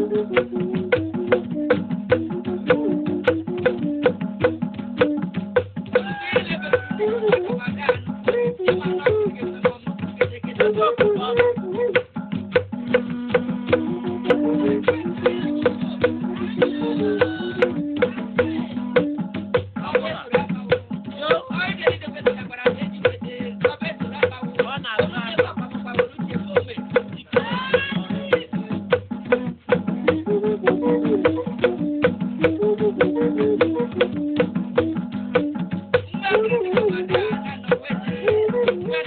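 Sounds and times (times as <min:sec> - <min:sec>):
drum and rattle strokes: 0:00.0 - 0:39.0
person singing: 0:13.7 - 0:19.1, 0:36.3 - 0:39.0.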